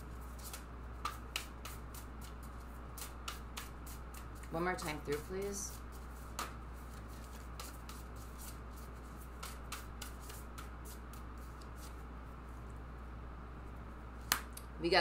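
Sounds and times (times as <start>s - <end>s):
cards being shuffled: 0.3s - 12.0s.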